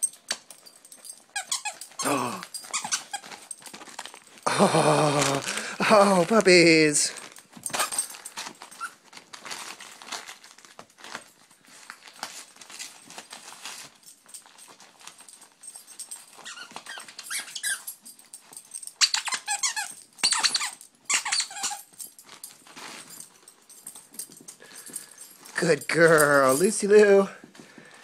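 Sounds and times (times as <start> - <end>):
dog chewing plush toy rustling: 0.0 - 27.7
squeaky toy squealing: 2.7 - 3.4, 16.4 - 17.9, 19.0 - 21.9.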